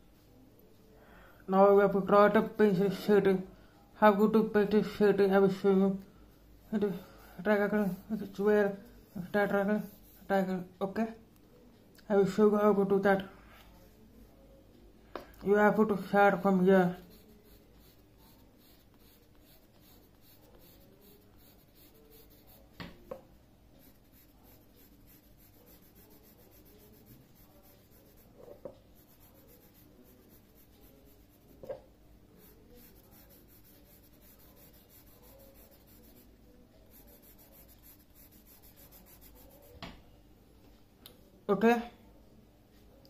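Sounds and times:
pencil scratching on paper: 7.3s - 10.5s, 15.8s - 22.8s, 23.8s - 31.8s, 32.4s - 39.8s.

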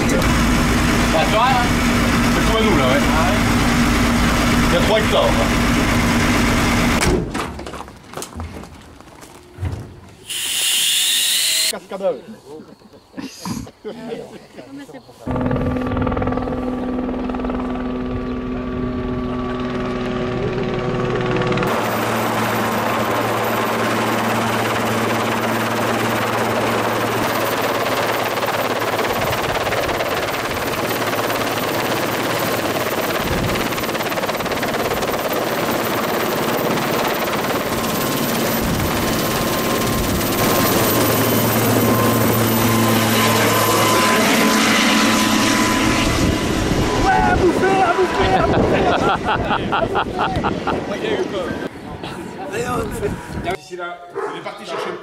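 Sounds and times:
vehicle engine humming: 0.0s - 7.0s, 15.3s - 51.6s
loud steady hiss: 10.2s - 11.8s.

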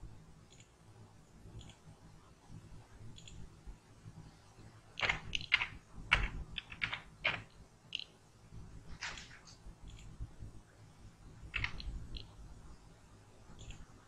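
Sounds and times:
keyboard keys tapping: 5.0s - 8.1s, 11.5s - 12.4s.

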